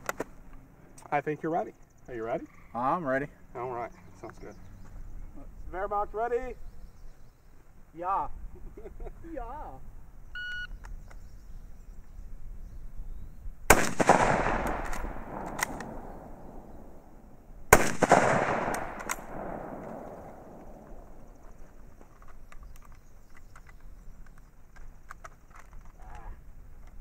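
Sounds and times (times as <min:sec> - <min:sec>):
rifle shots with echo: 0:13.7 - 0:21.4
rifle bolt clicks: 0:14.6 - 0:16.1, 0:18.0 - 0:21.0.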